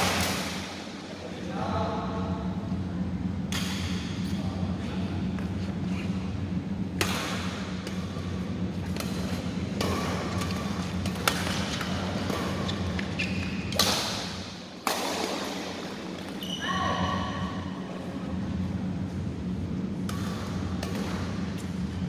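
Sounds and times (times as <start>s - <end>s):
steady low hum: 0.0s - 22.0s
rackets striking shuttlecock: 3.5s - 4.2s, 6.9s - 16.4s, 20.0s - 21.8s
short shoe squeaks: 12.6s - 13.7s, 16.4s - 16.8s.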